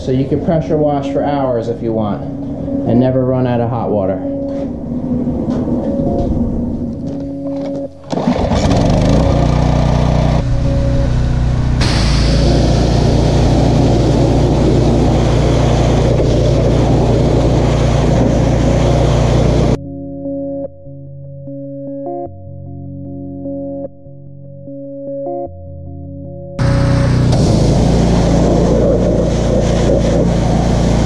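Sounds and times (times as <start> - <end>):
background music: 0.0 - 31.0
pressure washer motor running: 8.2 - 10.4, 11.8 - 19.8, 26.6 - 31.0
high-pressure water spraying: 11.8 - 19.8, 26.6 - 31.0.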